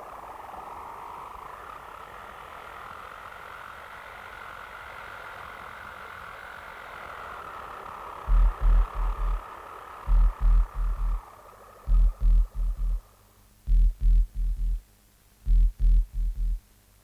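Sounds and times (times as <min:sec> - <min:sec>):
wavering rushing noise: 0:07.2 - 0:14.8
heavy low hits: 0:08.3 - 0:09.4, 0:10.1 - 0:11.2, 0:11.9 - 0:13.0, 0:13.7 - 0:14.8, 0:15.5 - 0:16.6.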